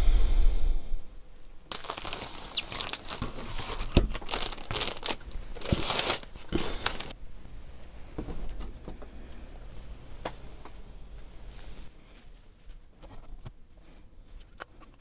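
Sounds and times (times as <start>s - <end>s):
plastic bag crinkling: 1.7s - 7.2s.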